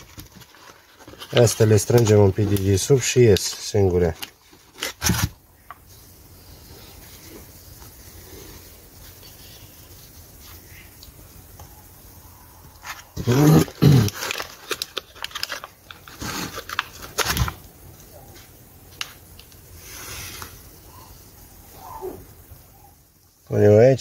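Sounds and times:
plastic trays clicking and rustling: 0.0s - 5.4s
short animal calls: 20.9s - 23.0s.

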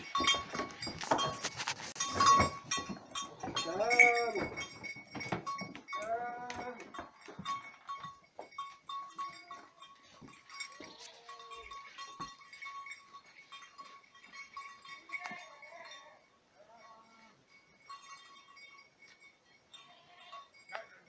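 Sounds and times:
hooves knocking on wooden floor: 0.0s - 8.9s
goats bleating: 3.5s - 4.5s, 6.0s - 6.9s.

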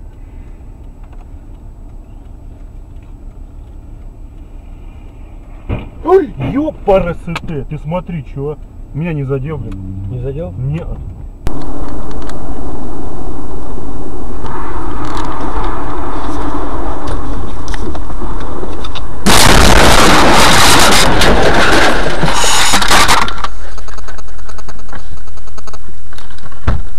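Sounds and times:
distorted car rumble: 0.0s - 26.9s
loud vehicle crash: 14.3s - 24.0s.

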